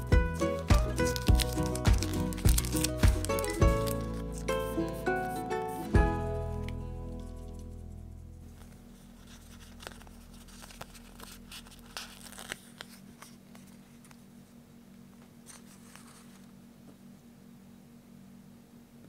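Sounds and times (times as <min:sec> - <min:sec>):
plastic sticker sheet crinkling: 0:00.0 - 0:05.4, 0:08.4 - 0:14.2
soft paper rustle: 0:00.4 - 0:05.8, 0:06.5 - 0:16.6.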